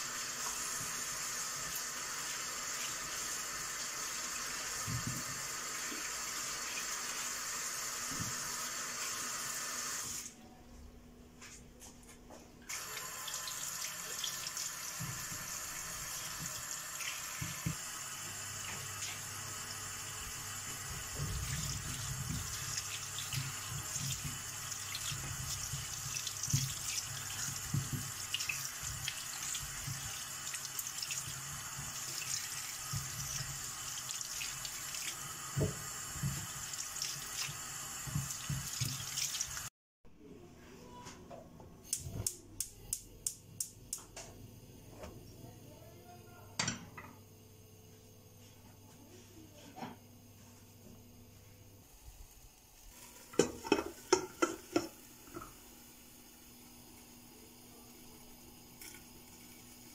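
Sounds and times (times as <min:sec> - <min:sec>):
faucet running into sink: 0:00.0 - 0:10.3, 0:12.7 - 0:39.7, 0:53.0 - 0:55.6.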